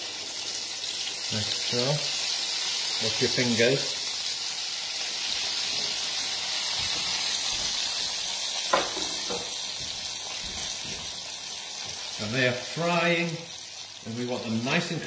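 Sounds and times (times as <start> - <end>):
food deep-frying in hot oil: 0.0 - 15.0.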